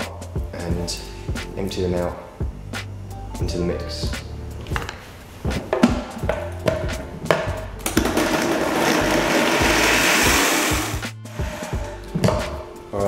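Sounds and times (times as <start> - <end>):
background music: 0.0 - 13.0
blender running: 8.0 - 11.9.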